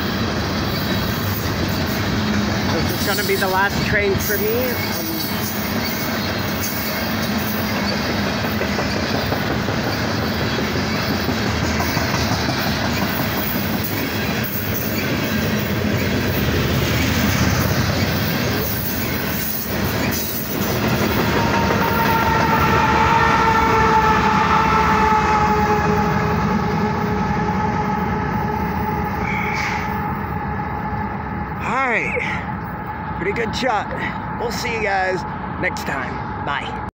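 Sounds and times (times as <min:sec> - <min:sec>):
train wheels rumbling on rails: 0:00.0 - 0:36.9
locomotive air horn: 0:21.2 - 0:30.2.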